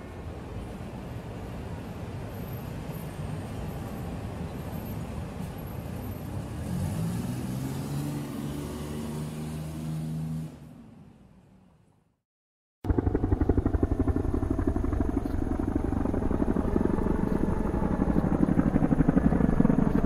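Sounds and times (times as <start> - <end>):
outdoor background noise: 0.0 - 12.2, 12.8 - 20.0
engine-like hum rising in pitch: 12.9 - 20.0.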